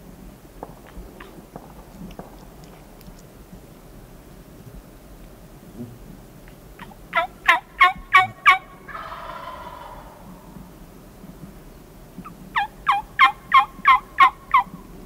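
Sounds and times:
turkey gobbling: 0:06.8 - 0:10.5, 0:12.6 - 0:14.7
turkeys yelping: 0:07.1 - 0:10.5, 0:12.6 - 0:14.7.

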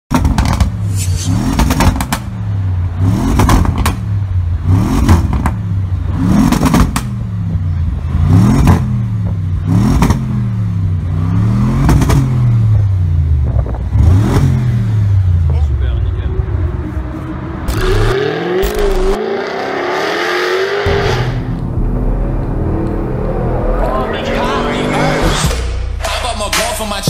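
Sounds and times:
exhaust cracks: 0:00.1 - 0:07.2, 0:20.8 - 0:27.0
car engine revving: 0:00.2 - 0:27.0.

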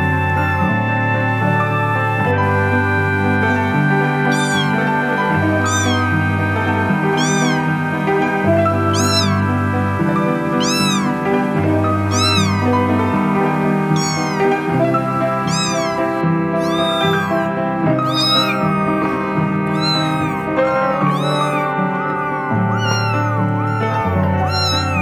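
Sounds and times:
kitten meowing: 0:00.0 - 0:00.6, 0:02.8 - 0:25.0
background music with sustained chords: 0:00.0 - 0:25.0.

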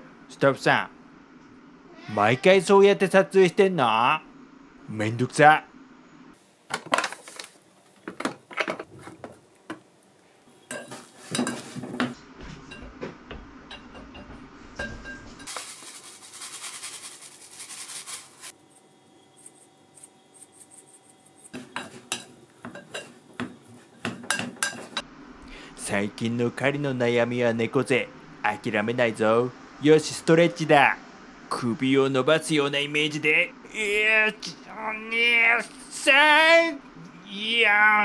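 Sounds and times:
utensils clinking on pots and dishes: 0:10.7 - 0:12.9, 0:13.7 - 0:15.6, 0:21.5 - 0:25.0.

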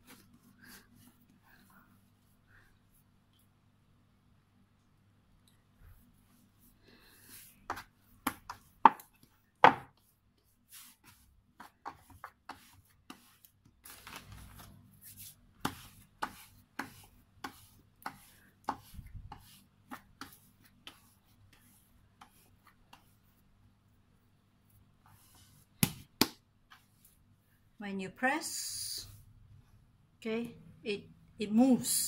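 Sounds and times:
dough knocking and slapping on wood: 0:07.7 - 0:10.1, 0:11.0 - 0:14.6, 0:15.5 - 0:23.1, 0:25.7 - 0:26.8.

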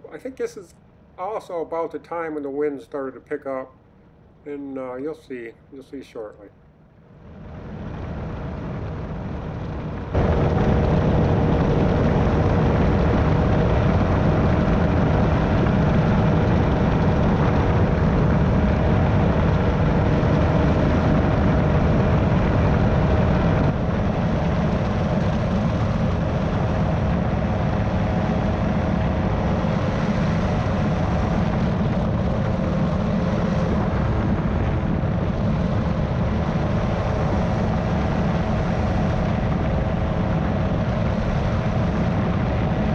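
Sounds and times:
powered parachute engine and propeller: 0:07.0 - 0:42.9
wind rushing: 0:07.2 - 0:42.9.

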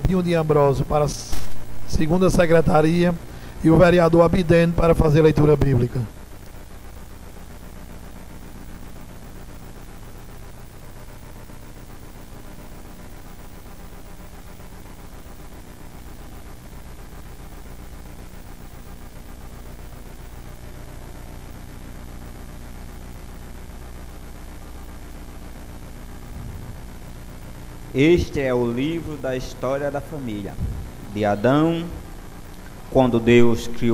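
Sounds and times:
even hiss: 0:00.0 - 0:04.4
low hum: 0:00.0 - 0:33.9.

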